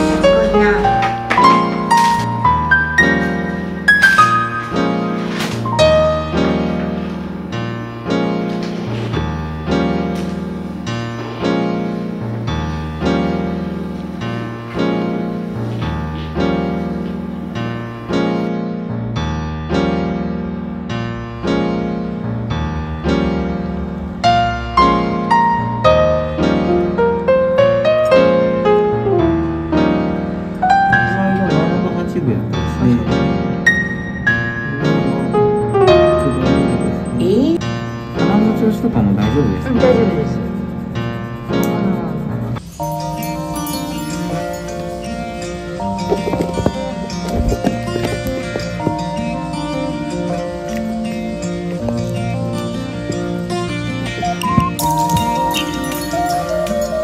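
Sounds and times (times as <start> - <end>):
slow piano chords: 0.0 - 57.0
low bass notes: 34.4 - 38.3.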